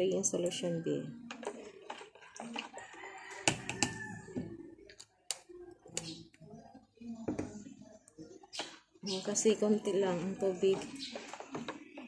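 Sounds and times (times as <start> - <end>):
rooster crowing: 2.8 - 4.4.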